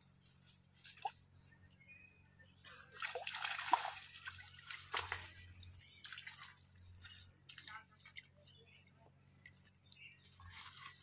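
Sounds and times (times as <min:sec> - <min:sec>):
water splashing and dripping: 0:02.7 - 0:08.3.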